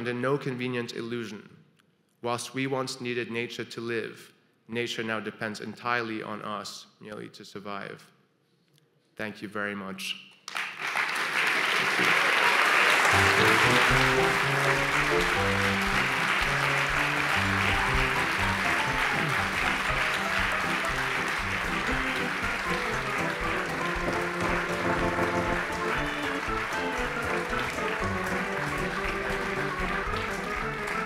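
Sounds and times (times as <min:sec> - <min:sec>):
audience applauding: 0:10.5 - 0:31.0
background music: 0:12.7 - 0:31.0.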